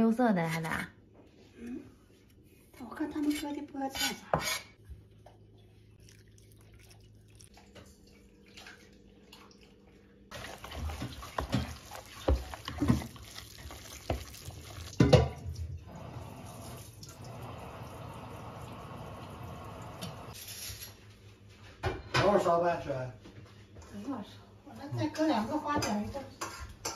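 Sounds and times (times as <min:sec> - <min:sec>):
running water: 0:05.2 - 0:20.4
chopsticks stirring wet filling: 0:10.3 - 0:15.5.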